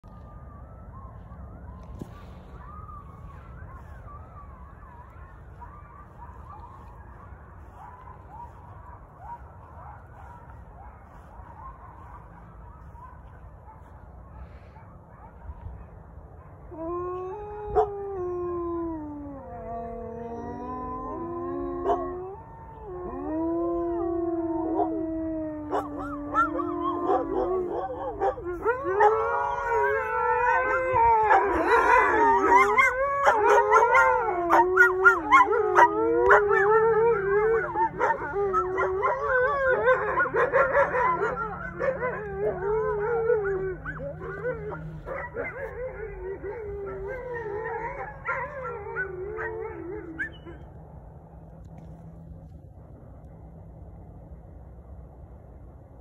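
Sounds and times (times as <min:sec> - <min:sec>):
dogs and coyotes howling: 0:00.0 - 0:52.5.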